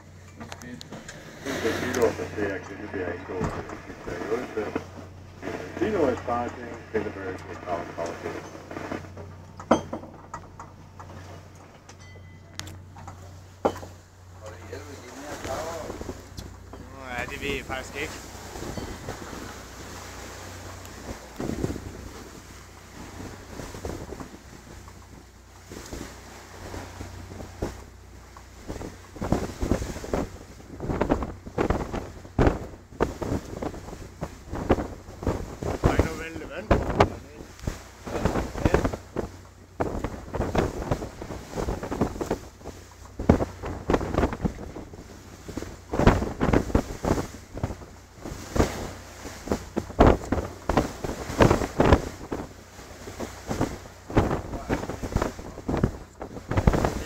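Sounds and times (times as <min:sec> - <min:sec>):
boat engine drone: 0:00.0 - 0:57.0
low steady rumble: 0:00.0 - 0:57.0
wind buffeting microphone: 0:12.8 - 0:57.0.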